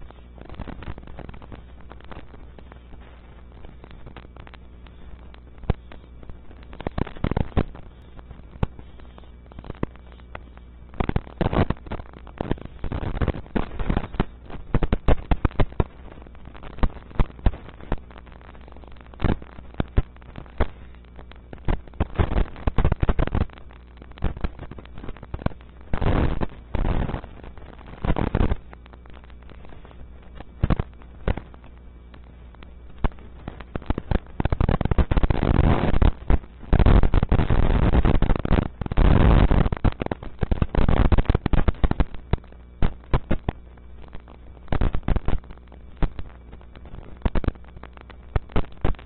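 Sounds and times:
low hum: 0.0 - 37.3.

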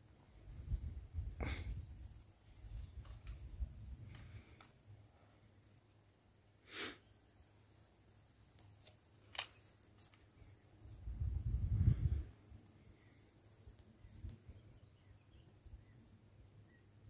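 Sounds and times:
sharp metallic click: 9.2 - 9.6
air pistol handling noise: 9.2 - 10.2.

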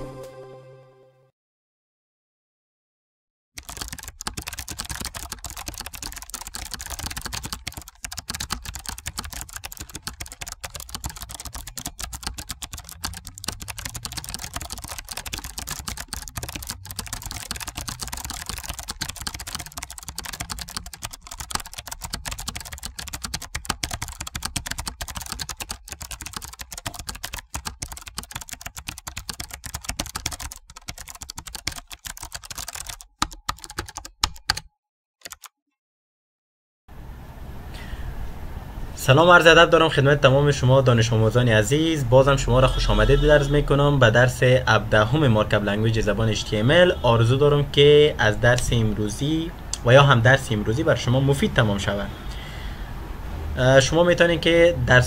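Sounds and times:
fast keyboard typing: 3.6 - 35.5, 42.2 - 43.5, 48.5 - 48.9.

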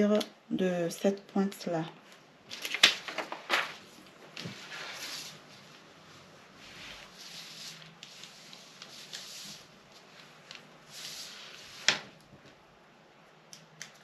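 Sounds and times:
paper rubbing and scratching: 4.4 - 5.8, 6.6 - 12.1.

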